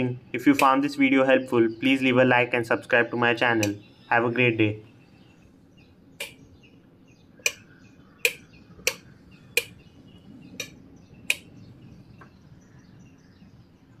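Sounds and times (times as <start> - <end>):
faint bird chirps: 0.0 - 14.0
light switch clicks: 3.6 - 3.8, 6.2 - 6.4, 7.4 - 9.8, 10.6 - 11.5.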